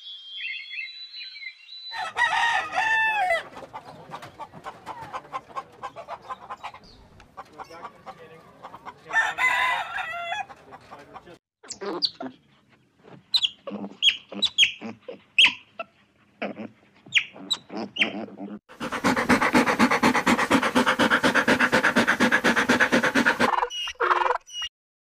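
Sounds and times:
dogs panting: 3.5s - 9.1s, 18.7s - 23.7s
otters chirping and squeaking: 10.8s - 12.4s, 13.1s - 18.6s, 22.8s - 24.7s.

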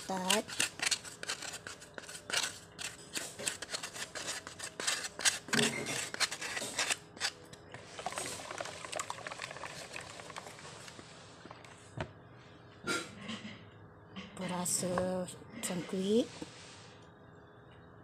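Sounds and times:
spoon scraping ceramic ramekin: 0.0s - 7.4s.

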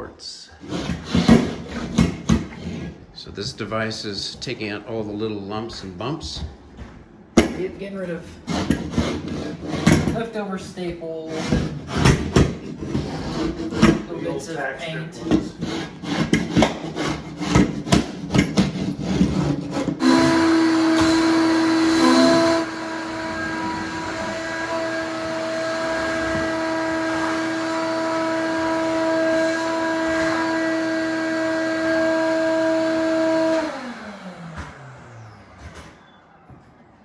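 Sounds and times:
floor scraper scraping: 0.5s - 4.6s, 8.2s - 35.9s
electric motor whine: 20.0s - 35.8s.

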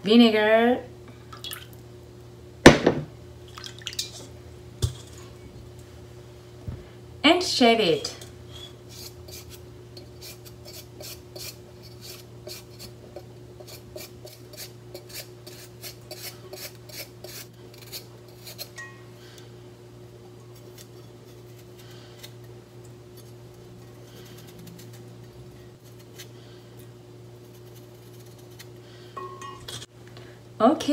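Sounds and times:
steady low hum: 0.0s - 30.9s
knife scraping root: 8.5s - 13.0s, 13.6s - 18.8s, 20.5s - 22.4s, 23.1s - 25.1s, 27.4s - 28.7s.

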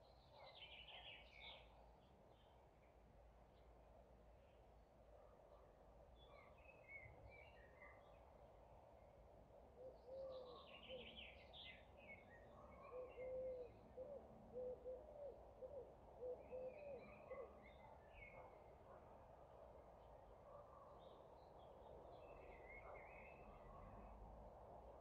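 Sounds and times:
small birds chirping and twittering: 0.0s - 2.6s, 10.0s - 13.8s, 21.0s - 24.2s.

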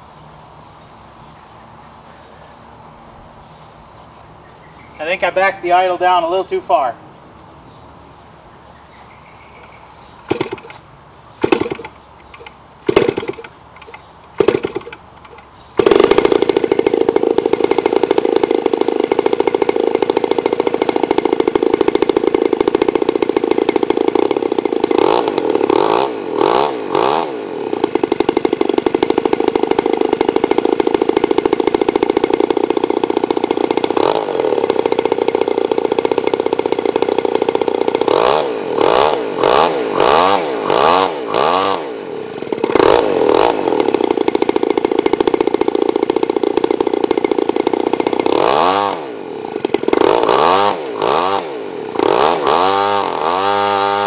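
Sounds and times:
model airplane engine starting and idling: 10.3s - 10.8s, 11.4s - 54.0s.

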